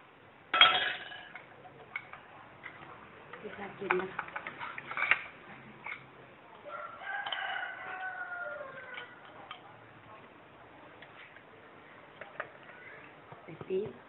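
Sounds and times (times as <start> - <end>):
dishes clicking: 0.6 - 6.1, 8.9 - 9.8
rooster crowing: 6.6 - 9.4.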